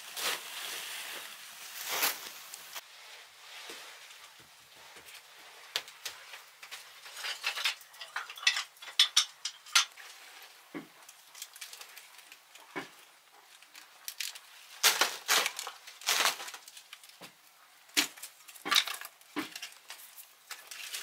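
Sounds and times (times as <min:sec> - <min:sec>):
metal tools clinking in a bucket: 0:06.7 - 0:10.0.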